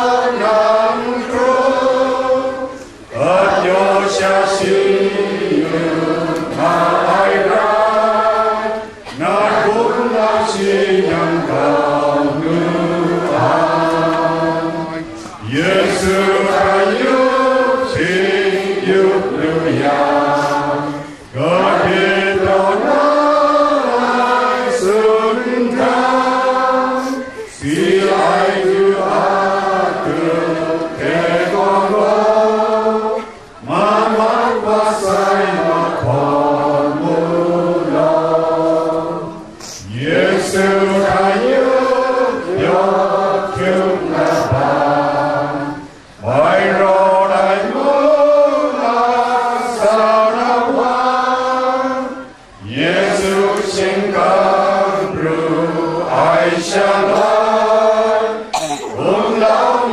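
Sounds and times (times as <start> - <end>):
congregation singing a hymn: 0.0 - 59.9.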